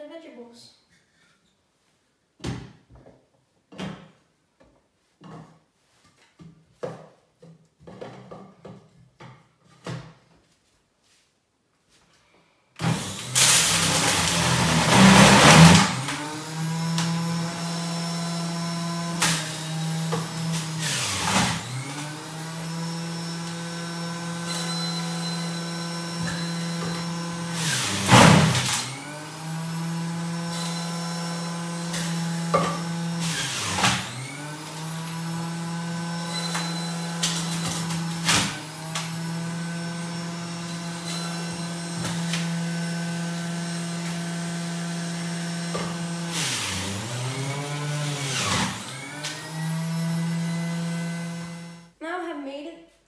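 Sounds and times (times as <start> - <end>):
juicer motor whining: 12.8 - 51.9.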